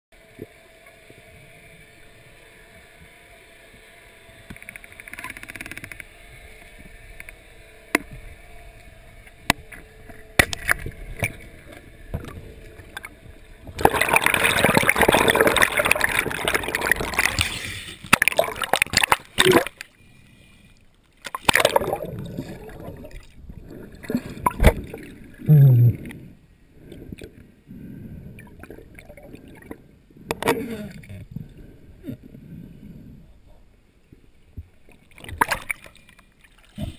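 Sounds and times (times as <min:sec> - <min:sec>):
sharp underwater clicks and knocks: 0:04.4 - 0:06.2, 0:09.3 - 0:15.7
underwater water bubbling: 0:04.4 - 0:36.9
rushing bubbling water: 0:12.1 - 0:19.8, 0:21.3 - 0:26.1, 0:28.3 - 0:30.6.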